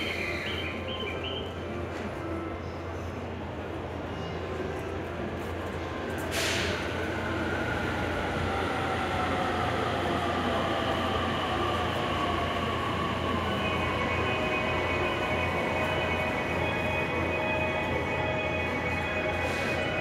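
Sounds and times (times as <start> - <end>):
train brake hiss: 6.2 - 6.9
high steady tones: 12.9 - 20.0.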